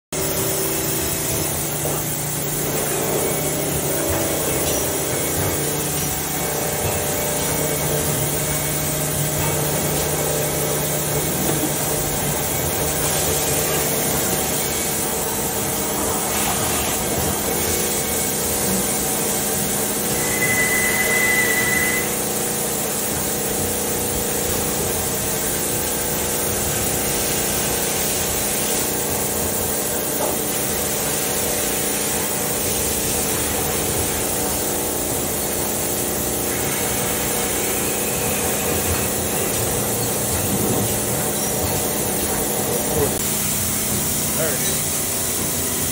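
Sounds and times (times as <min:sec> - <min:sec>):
machine motors humming: 0:00.2 - 0:45.9
brief high whine: 0:20.0 - 0:22.3.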